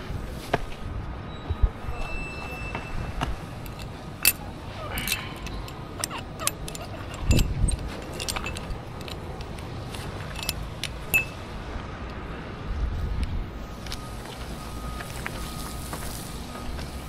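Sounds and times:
metal climbing gear clinking: 2.0s - 11.5s.

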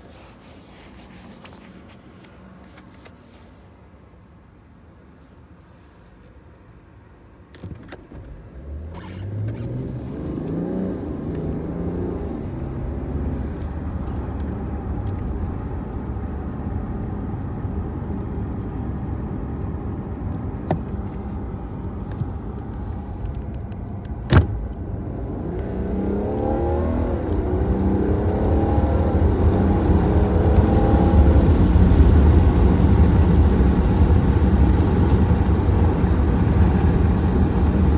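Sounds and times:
low road rumble: 0.0s - 37.9s
car engine accelerating: 8.2s - 37.9s.

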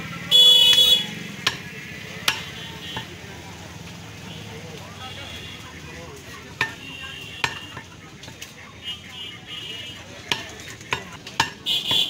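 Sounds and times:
cleaver chopping on wooden block: 1.4s - 3.1s, 10.3s - 12.0s.

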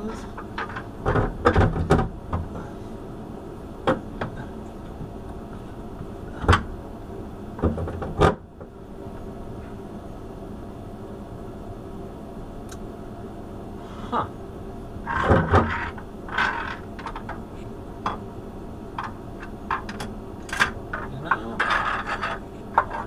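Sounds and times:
steady hum: 0.0s - 23.0s
metal clunks and knocks: 0.5s - 2.5s, 7.6s - 8.5s.

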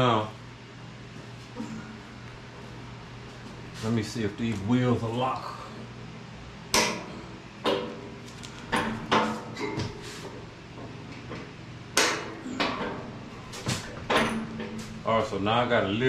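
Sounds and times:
metal clunks and knocks: 6.7s - 8.0s, 8.7s - 10.0s, 10.7s - 15.0s.

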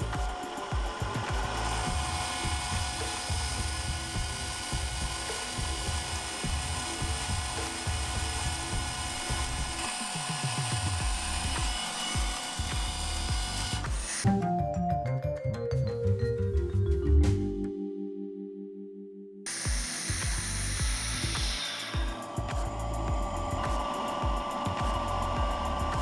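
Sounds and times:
vacuum pump motor whining: 0.0s - 14.3s, 19.5s - 26.0s
background music: 0.0s - 26.0s.

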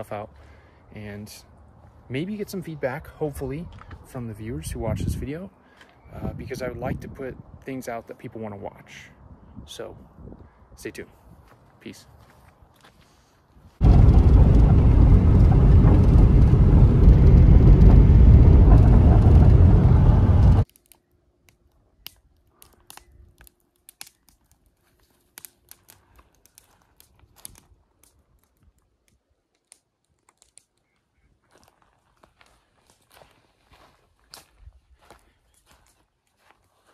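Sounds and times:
loud deep rushing noise: 13.8s - 20.6s.

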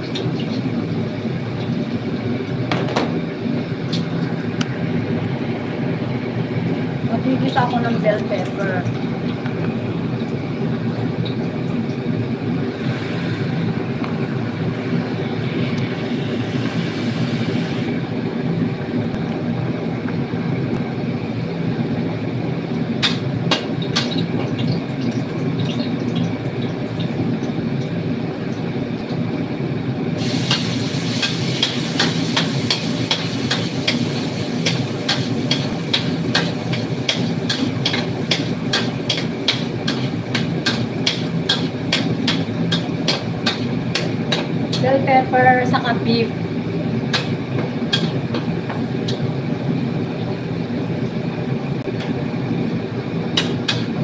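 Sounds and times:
loud sizzling: 30.1s - 48.3s.

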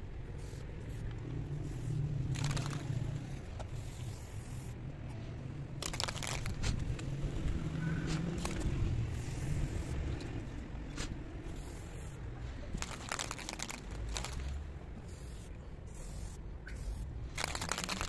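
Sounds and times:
spray paint can hissing: 0.2s - 4.8s, 5.8s - 6.8s, 8.4s - 10.0s, 11.5s - 12.2s, 12.8s - 18.0s.

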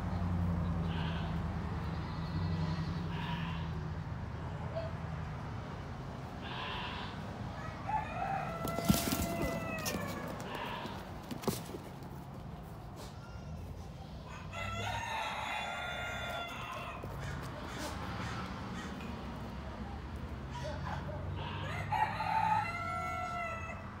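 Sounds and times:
rooster crowing: 7.0s - 11.0s, 14.2s - 18.9s, 20.5s - 24.0s.

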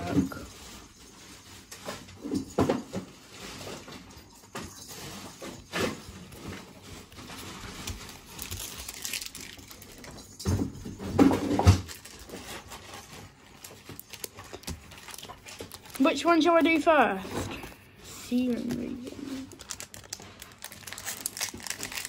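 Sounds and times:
foil wrapper crinkling: 5.4s - 10.4s, 11.5s - 22.0s
cards rustling and tapping: 11.3s - 17.8s, 18.5s - 22.0s.

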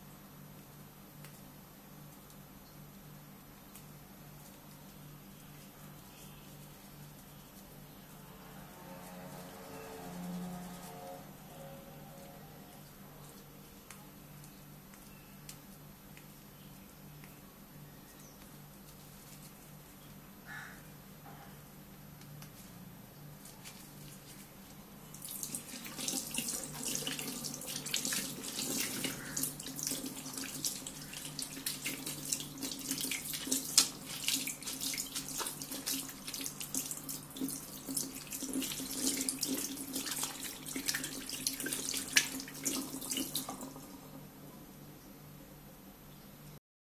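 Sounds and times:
water splashing over fingers: 25.2s - 43.9s
sink tap running: 25.2s - 44.0s.

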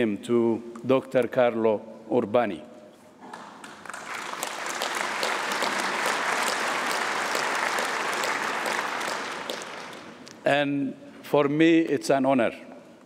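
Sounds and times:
audience applauding: 3.3s - 10.3s.

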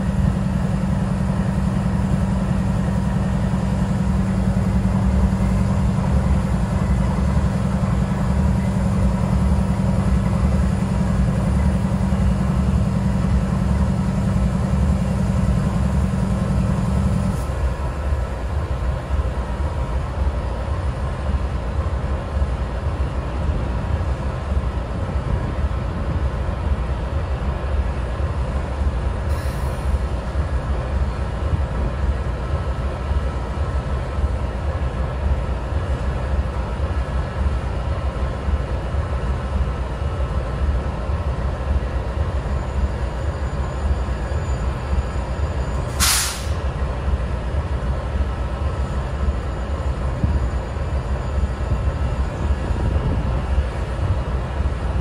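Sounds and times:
diesel locomotive idling: 0.0s - 55.0s
brief hiss: 29.3s - 29.9s, 45.9s - 46.6s.

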